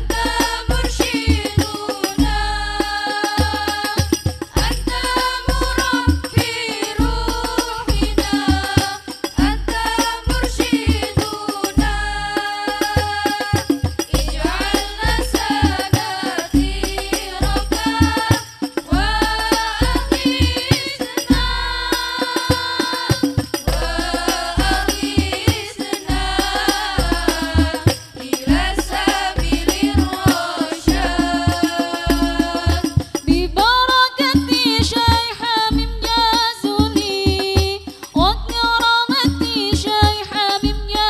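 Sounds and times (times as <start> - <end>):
bass drum thumps: 0.0 - 3.0, 9.4 - 38.8
women singing devotional song: 0.0 - 41.0.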